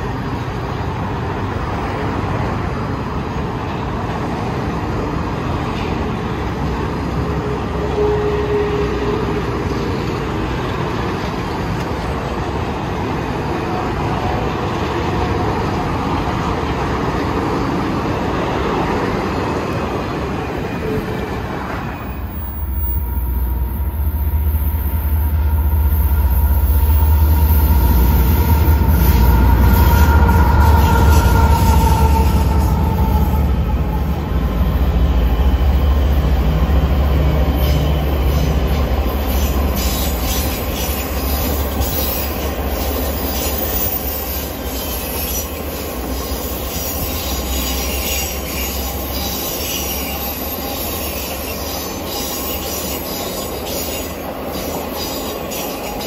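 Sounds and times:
train wheels rumbling on rails: 0:00.0 - 0:56.0
high squeal: 0:19.2 - 0:56.0.

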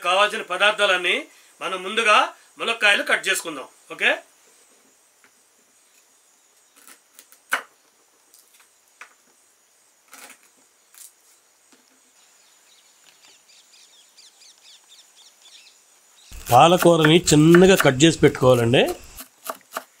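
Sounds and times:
faint bird chirps: 0:12.0 - 0:16.4
knife chopping on wooden board: 0:16.4 - 0:19.9.

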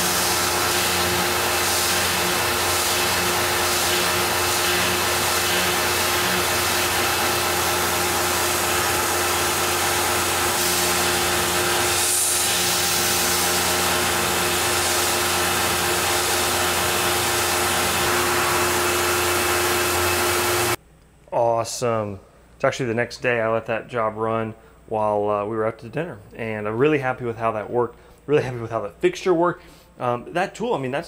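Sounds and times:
mill spindle machining aluminum: 0:00.0 - 0:20.8.

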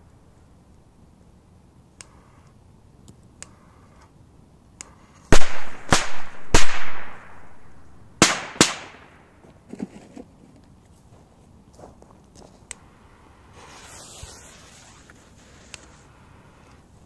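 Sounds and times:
firecrackers popping and banging: 0:05.3 - 0:07.4, 0:08.2 - 0:09.2.

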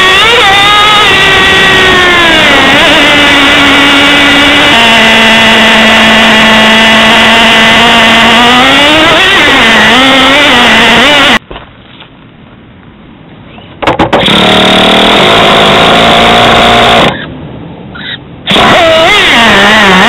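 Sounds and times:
small nitro engine whining: 0:00.0 - 0:11.4, 0:14.2 - 0:17.3, 0:18.5 - 0:20.0.

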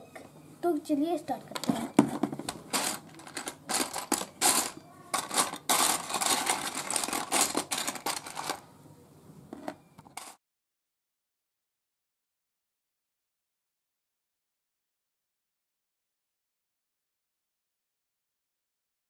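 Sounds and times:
plastic bricks clattering: 0:01.6 - 0:08.6, 0:09.6 - 0:10.4.

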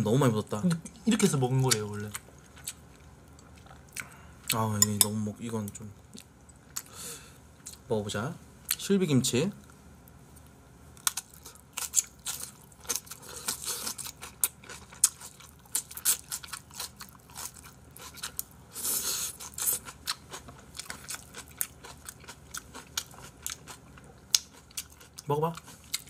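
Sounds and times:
chewing and crunching: 0:00.7 - 0:05.1, 0:10.4 - 0:26.0.

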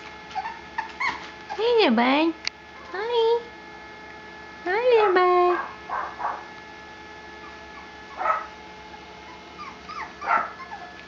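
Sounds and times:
puppies high whines: 0:00.3 - 0:01.8, 0:07.4 - 0:08.6, 0:09.2 - 0:11.0
puppies whimpering and yipping: 0:00.3 - 0:01.8, 0:07.4 - 0:08.5, 0:09.2 - 0:11.0.

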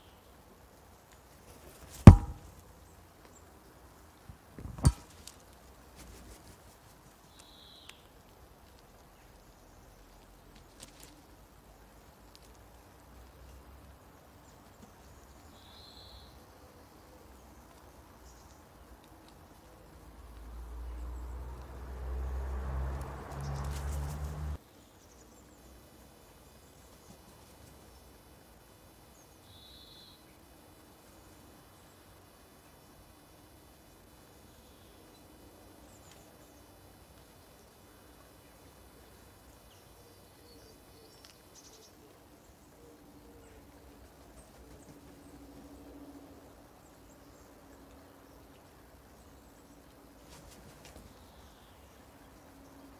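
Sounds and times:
faint background hiss: 0:23.0 - 0:52.9.

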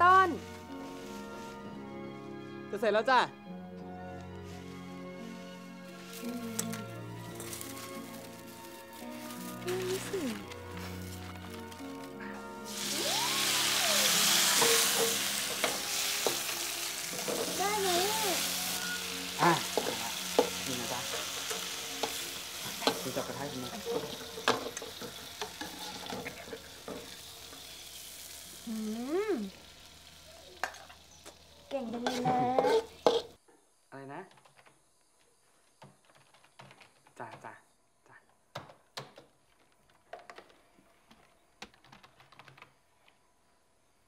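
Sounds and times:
food sizzling in a wok: 0:00.0 - 0:02.2, 0:04.4 - 0:33.4
metal spatula scraping a wok: 0:14.2 - 0:17.6, 0:18.4 - 0:28.3, 0:31.8 - 0:33.4
people laughing: 0:26.1 - 0:26.8.

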